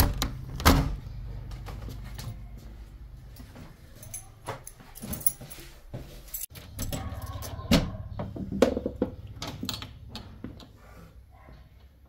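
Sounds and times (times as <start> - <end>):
door pushed open: 0.0 - 1.1.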